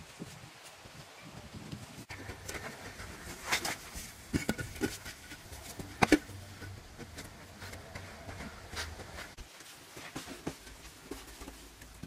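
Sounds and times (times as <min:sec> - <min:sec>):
stones knocking: 0:02.1 - 0:09.4.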